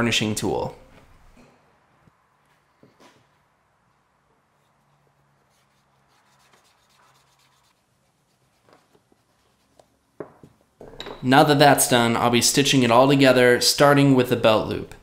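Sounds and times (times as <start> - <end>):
faint rubbing: 4.4 - 9.9.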